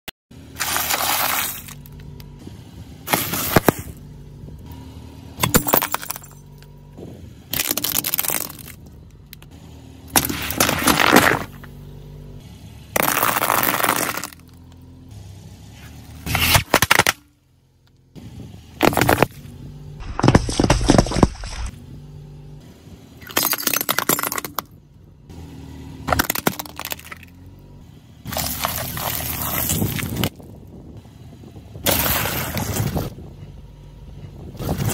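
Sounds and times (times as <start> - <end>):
tyre crushing plastic and snacks: 0.6 - 2.0, 3.1 - 4.0, 7.5 - 8.8, 10.1 - 11.7, 13.0 - 14.5, 18.8 - 19.4, 20.0 - 21.7, 26.1 - 27.3, 28.3 - 30.4.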